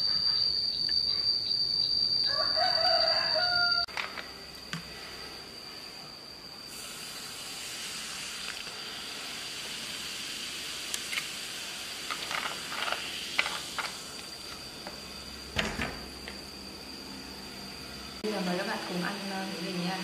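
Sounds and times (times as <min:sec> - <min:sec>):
soda fizzing in a mug: 0:06.7 - 0:14.1.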